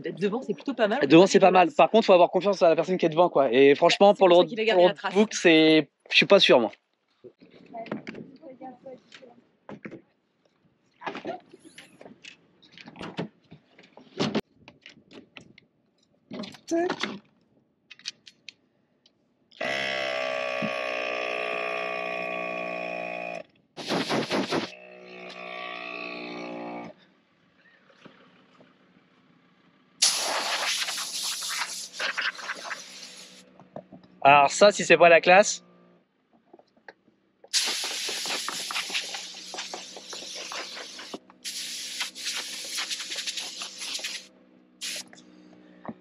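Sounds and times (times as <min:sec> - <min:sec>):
air compressor running: 0:19.6 - 0:27.0, 0:30.0 - 0:33.5, 0:37.5 - 0:45.6
air blow gun hiss: 0:23.8 - 0:24.7, 0:30.0 - 0:33.4, 0:37.5 - 0:45.2.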